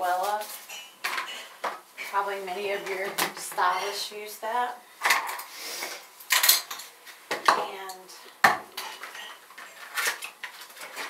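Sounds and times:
plastic tools clattering on counter: 6.3s - 7.7s.

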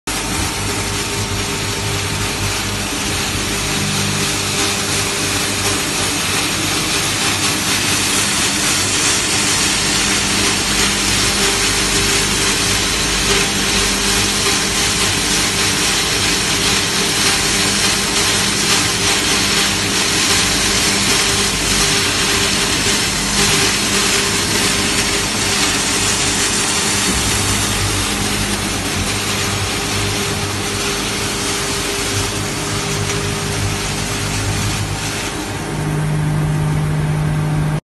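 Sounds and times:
grain crusher humming: 0.0s - 37.8s.

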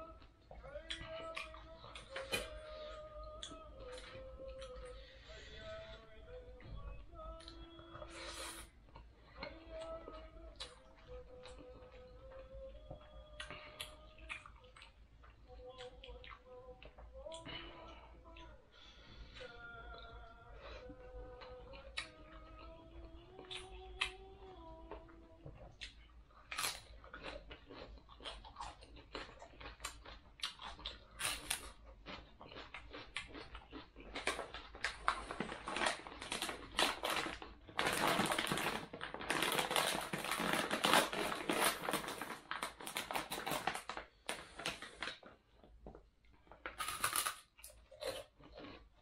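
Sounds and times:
crunching of fried fish being eaten: 24.9s - 45.3s, 46.3s - 49.0s.

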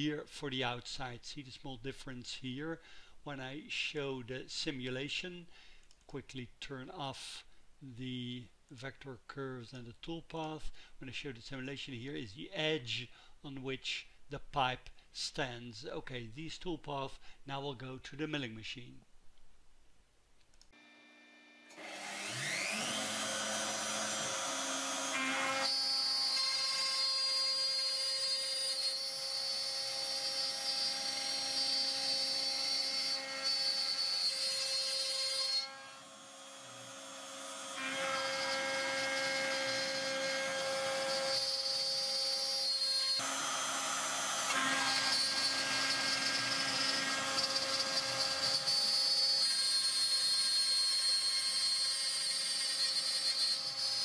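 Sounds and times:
milling machine cutting plastic: 43.2s - 54.0s.

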